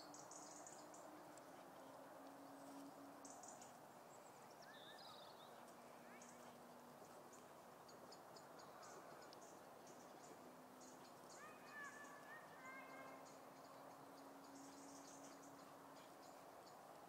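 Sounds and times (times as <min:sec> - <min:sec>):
faint low hum: 0:00.0 - 0:17.0
faint bird chirps: 0:02.3 - 0:17.0.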